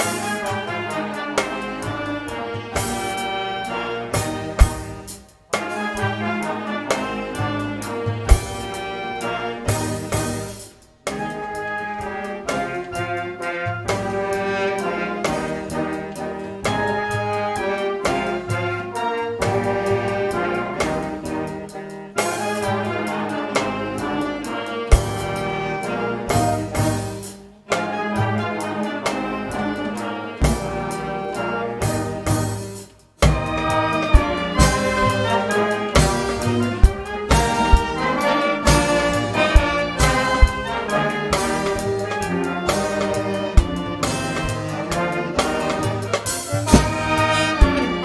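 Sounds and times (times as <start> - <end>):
brass band music: 0.0 - 48.0.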